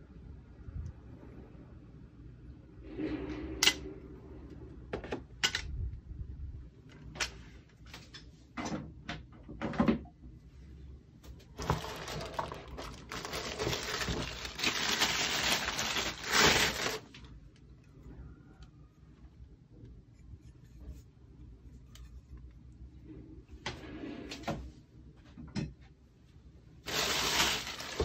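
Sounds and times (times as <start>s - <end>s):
plastic wrap crinkling: 11.5s - 17.3s, 26.8s - 28.0s.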